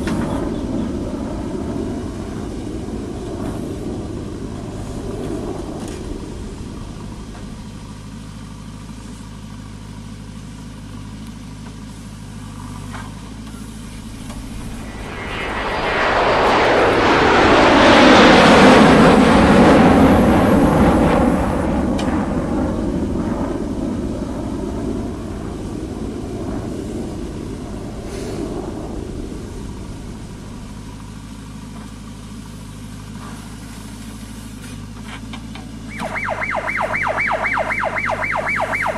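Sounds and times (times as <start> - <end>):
backhoe diesel engine running: 5.4 - 14.6, 29.4 - 36.3.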